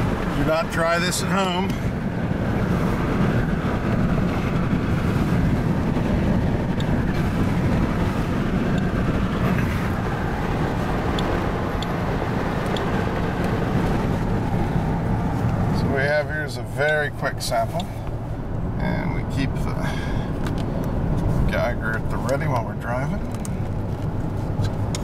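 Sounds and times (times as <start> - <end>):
road and wind noise in car: 0.0 - 25.0.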